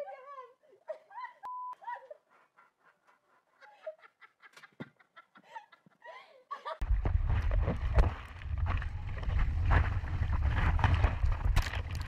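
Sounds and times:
wind rumbling on microphone: 0:06.8 - 0:12.0.

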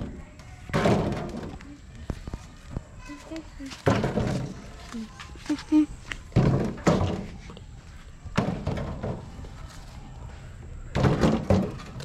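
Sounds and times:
coconuts thunking into metal wheelbarrow: 0:00.0 - 0:01.6, 0:03.8 - 0:04.7, 0:06.3 - 0:07.4, 0:08.3 - 0:09.4, 0:10.9 - 0:12.0.

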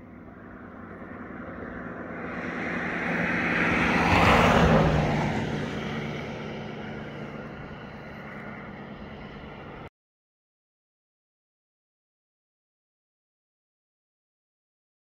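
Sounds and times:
vehicle driving past: 0:00.0 - 0:09.9.

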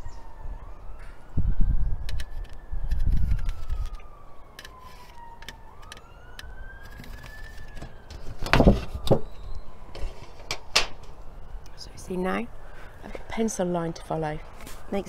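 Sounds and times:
wind rumbling on microphone: 0:00.0 - 0:04.1
emergency vehicle siren wailing: 0:00.0 - 0:15.0.

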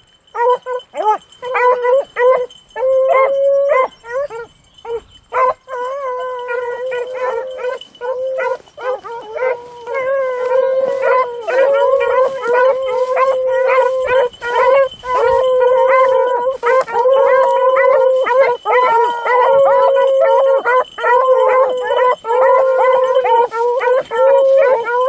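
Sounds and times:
beagles baying: 0:00.3 - 0:25.0.

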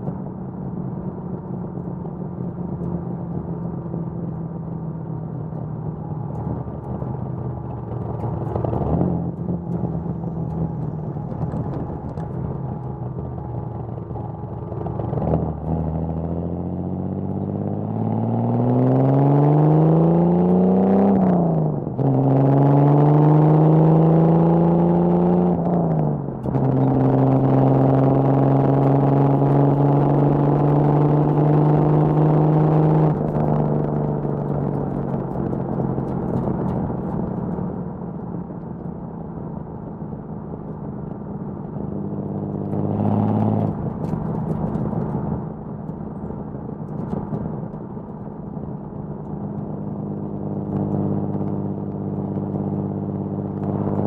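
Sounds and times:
car engine accelerating: 0:00.0 - 0:54.0.

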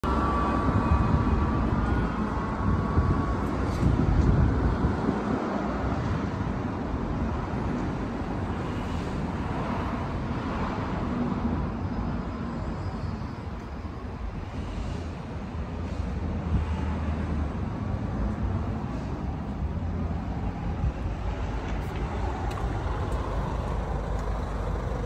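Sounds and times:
vehicle and street rumble: 0:00.0 - 0:25.0.

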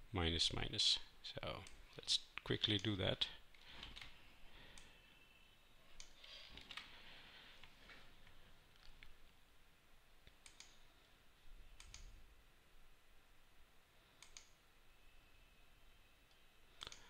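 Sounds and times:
faint computer mouse clicks: 0:10.4 - 0:10.8, 0:11.8 - 0:12.1, 0:14.2 - 0:14.6, 0:16.8 - 0:17.0.

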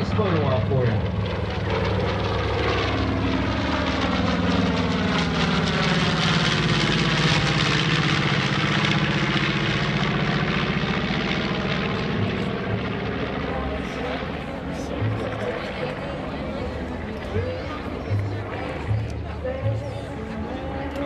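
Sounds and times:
propeller plane engines droning: 0:00.0 - 0:21.0.

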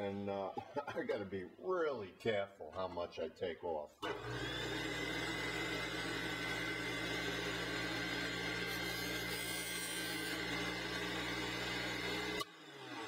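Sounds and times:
juicer motor humming and whining: 0:04.0 - 0:13.0.

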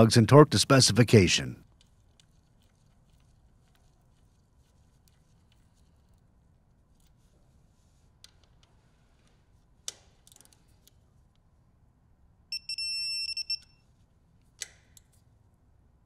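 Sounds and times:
torque wrench beeping: 0:12.5 - 0:13.8.

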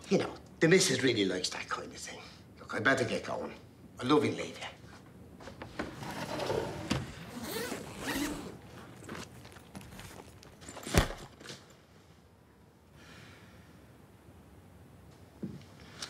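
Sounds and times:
suitcase zipper rasping: 0:06.0 - 0:11.2.

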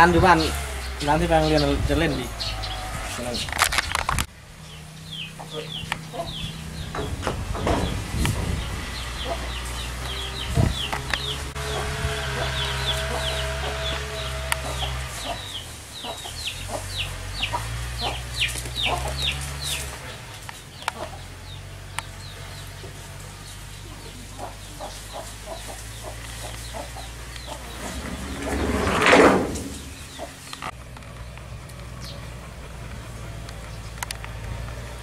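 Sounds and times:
high chirping calls: 0:00.0 - 0:03.6, 0:04.6 - 0:28.8, 0:29.6 - 0:30.8
chickens clucking: 0:04.6 - 0:30.8.

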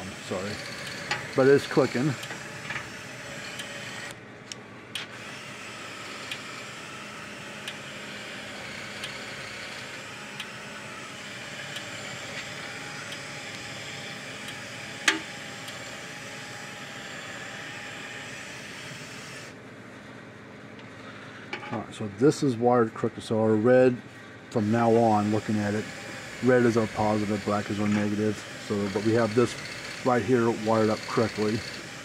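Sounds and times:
electric fence charger clicking: 0:00.6 - 0:05.2, 0:06.2 - 0:06.6, 0:07.6 - 0:07.9, 0:08.9 - 0:10.6, 0:11.6 - 0:13.7, 0:14.4 - 0:15.8.

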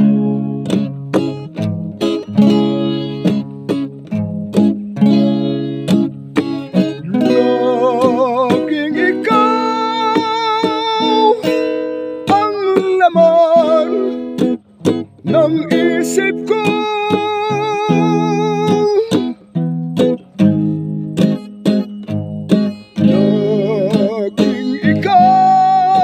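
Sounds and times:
acoustic guitar strumming: 0:00.0 - 0:26.0
person singing a slow ballad: 0:06.8 - 0:14.6, 0:15.2 - 0:19.4, 0:22.9 - 0:26.0.

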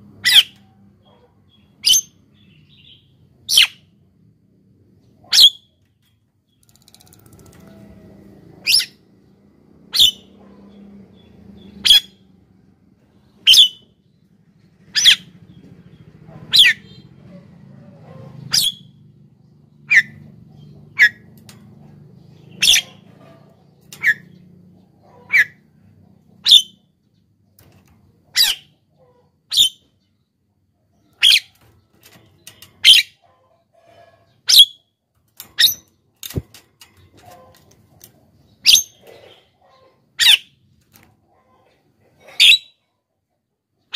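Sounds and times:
myna bird calling: 0:22.3 - 0:23.3.

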